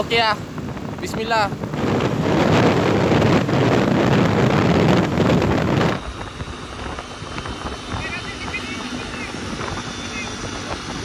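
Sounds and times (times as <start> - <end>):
motorcycle riding noise: 0.0 - 11.0
wind rushing over microphone: 0.0 - 11.0.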